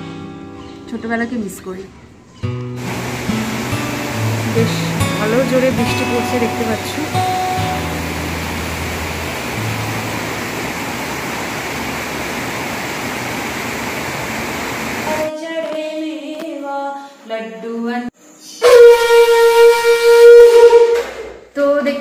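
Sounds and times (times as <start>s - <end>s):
heavy rain falling: 2.8s - 15.3s.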